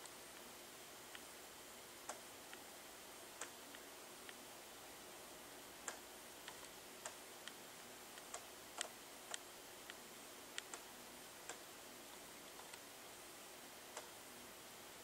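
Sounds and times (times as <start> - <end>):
faint steady hiss: 0.0 - 15.0
sharp clicks: 8.2 - 10.0, 10.6 - 10.9, 12.6 - 12.9.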